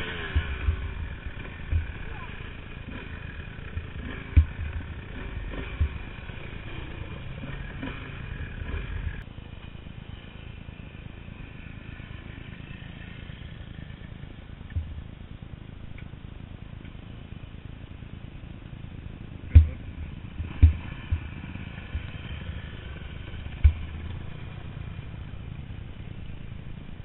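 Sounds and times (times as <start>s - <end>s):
sharp thumps: 0.0s - 9.2s, 19.5s - 22.4s, 23.4s - 24.4s
dirt bike engine running: 0.0s - 27.0s
low rumble: 0.0s - 27.0s.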